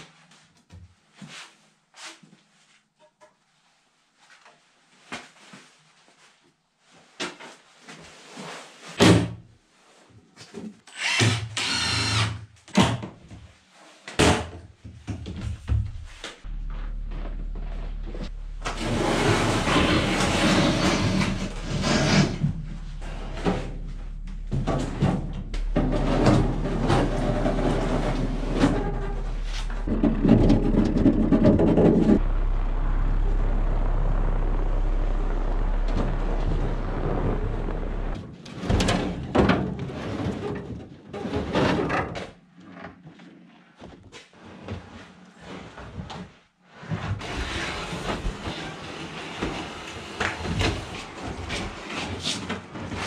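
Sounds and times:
vehicle engine running: 15.8s - 38.2s
rattling and clattering: 18.6s - 32.2s.

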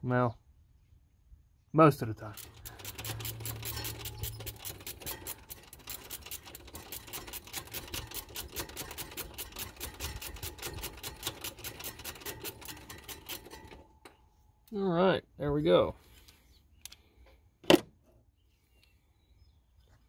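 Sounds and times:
hand ratchet clicking: 2.3s - 13.8s.

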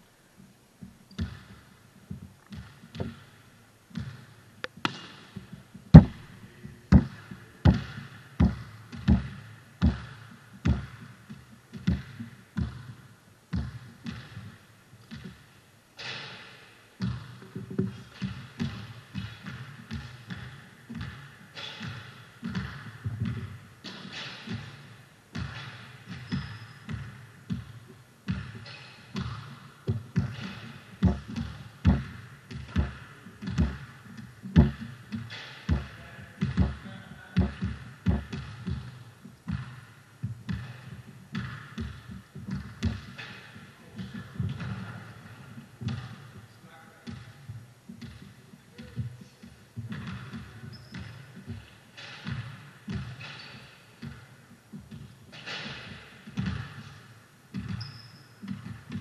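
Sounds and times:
basketballs bouncing on court: 0.8s - 59.0s.

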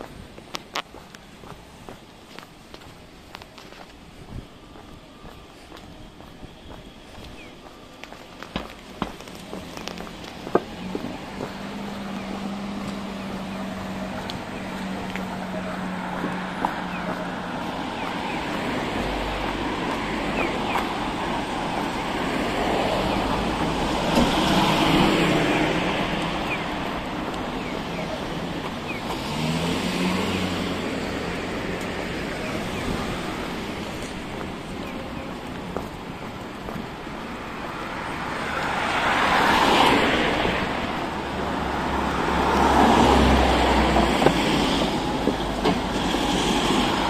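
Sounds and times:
cars passing: 0.0s - 47.0s
car accelerating past: 28.9s - 33.6s.

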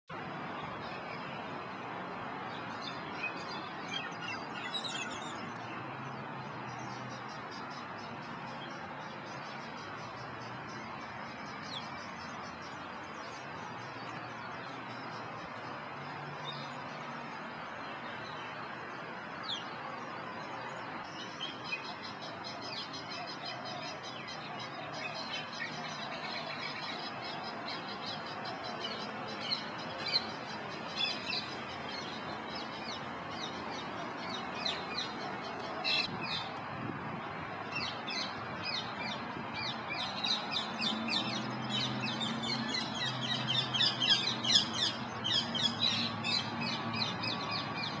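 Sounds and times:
outdoor background noise: 0.1s - 48.0s
birds chirping: 2.5s - 36.6s.

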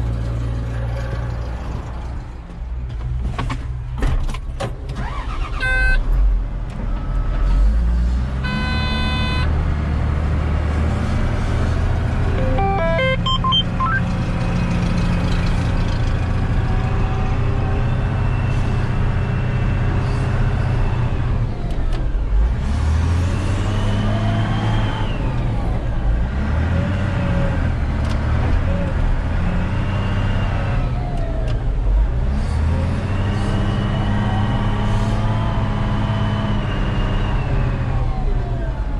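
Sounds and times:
brief horn-like tone: 8.4s - 9.5s, 12.4s - 14.0s.

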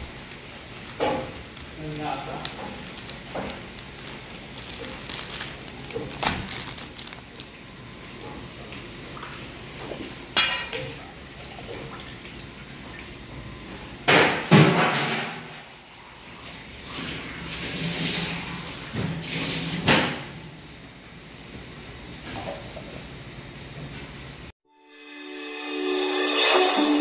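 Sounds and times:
loud plastic rustle: 0.0s - 8.7s
plastic bag crinkling: 0.0s - 8.7s.

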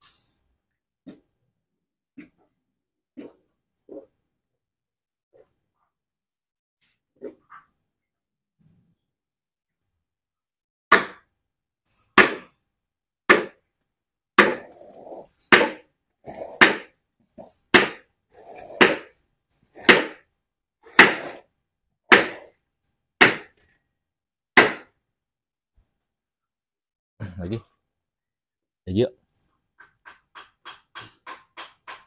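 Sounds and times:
sledgehammer striking wooden block: 10.9s - 11.3s, 12.1s - 12.6s, 13.3s - 13.7s, 14.4s - 14.8s, 15.5s - 15.9s, 16.5s - 16.9s, 17.7s - 18.1s, 18.7s - 19.2s, 19.8s - 21.4s, 22.1s - 22.6s, 23.2s - 23.6s, 24.6s - 25.0s.

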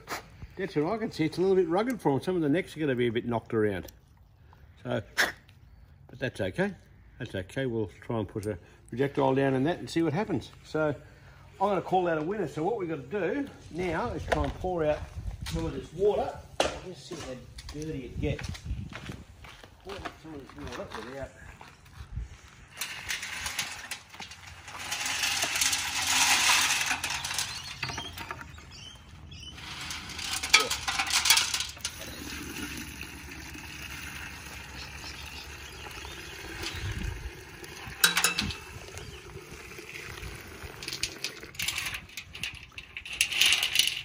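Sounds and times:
water pouring into bucket: 31.7s - 42.0s.

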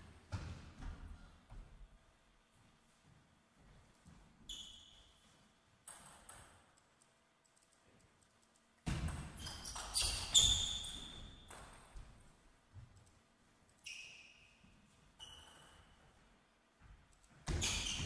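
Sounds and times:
table tennis ball bouncing: 8.8s - 12.0s.

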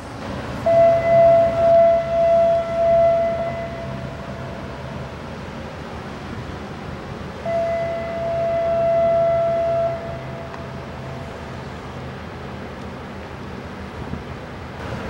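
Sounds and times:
ship horn blast: 0.0s - 5.2s, 7.3s - 11.5s.

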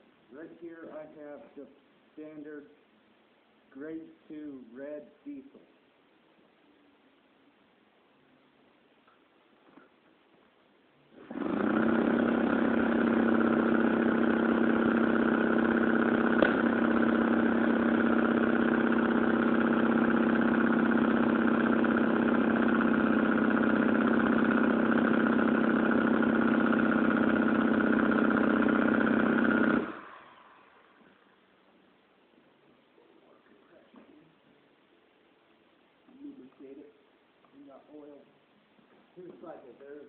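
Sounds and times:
power tool motor whine: 11.2s - 30.8s.

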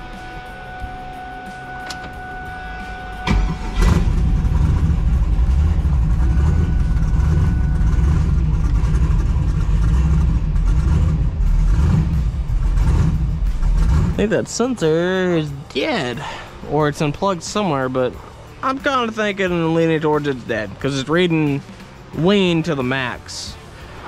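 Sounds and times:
starter whine: 0.0s - 15.7s
car engine cranking and idling: 0.0s - 22.6s.

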